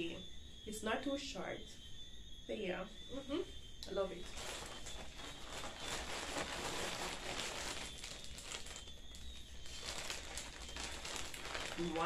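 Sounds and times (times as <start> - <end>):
plastic packaging crinkling: 4.1 - 12.0.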